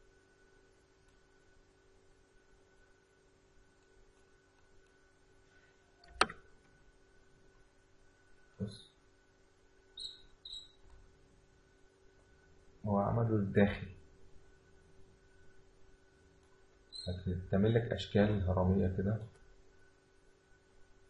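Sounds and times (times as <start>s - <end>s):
faint steady hum: 0.0s - 21.0s
mouse and keyboard clicks: 6.0s - 6.4s.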